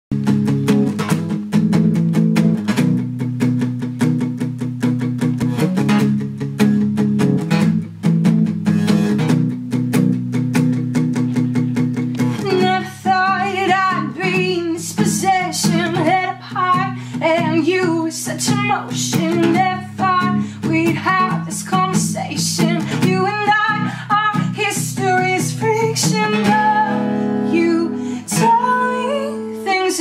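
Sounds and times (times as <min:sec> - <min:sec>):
acoustic guitar strumming: 0:00.1 - 0:30.0
woman singing: 0:12.4 - 0:30.0.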